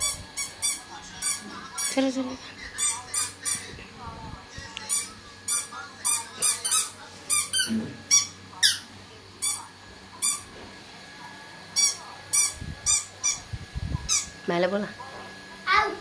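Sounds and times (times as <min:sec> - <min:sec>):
squeaky toy squeaks: 0:11.8 - 0:13.4.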